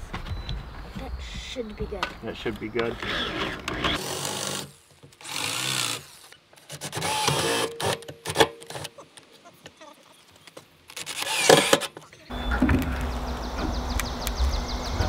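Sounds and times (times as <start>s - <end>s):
power drill drilling into wood: 3.0s - 8.4s, 11.0s - 11.8s.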